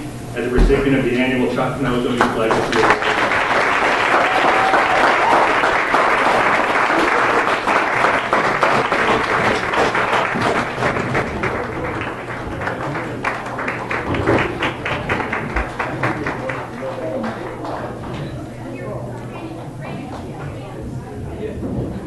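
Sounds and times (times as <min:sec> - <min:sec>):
audience applauding: 0:02.0 - 0:18.4.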